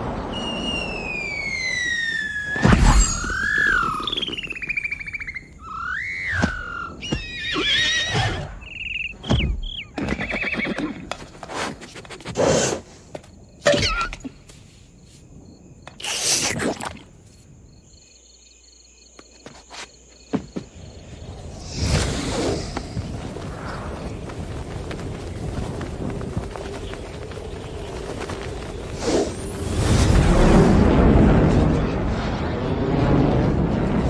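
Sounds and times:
horse whinnying and snorting: 5.6 - 8.6, 10.0 - 11.1.

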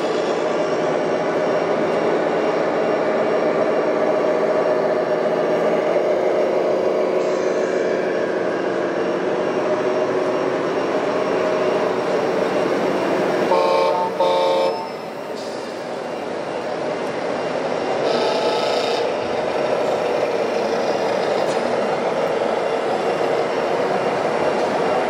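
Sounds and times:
truck horn blasts: 13.5 - 15.0.

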